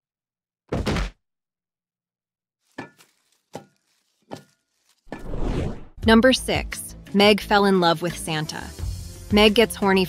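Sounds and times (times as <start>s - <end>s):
cartoon thud of body falling: 0.7s - 1.2s.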